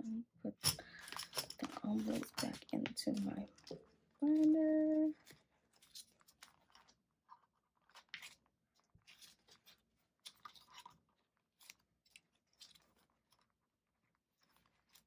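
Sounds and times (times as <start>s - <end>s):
plastic pouches crinkling: 0.6s - 7.0s.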